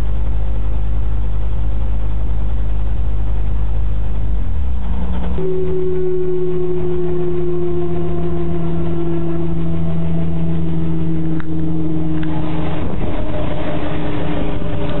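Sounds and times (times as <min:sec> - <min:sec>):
helicopter engine and rotor drone: 0:04.4 - 0:15.0.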